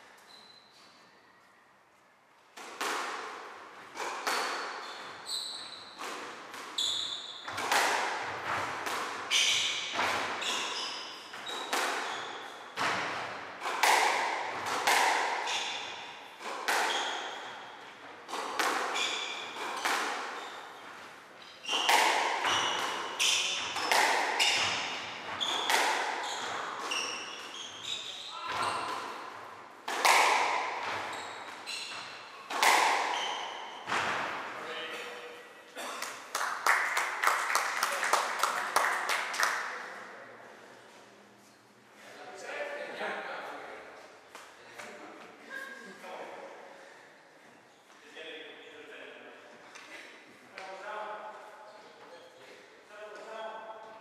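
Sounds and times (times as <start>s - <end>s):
shoes squeaking on wooden floor: 4.3s - 6.1s, 6.7s - 7.6s, 9.3s - 12.9s, 18.9s - 29.0s, 30.9s - 32.4s
squash ball knocking off walls: 21.7s - 26.9s, 29.8s - 31.1s.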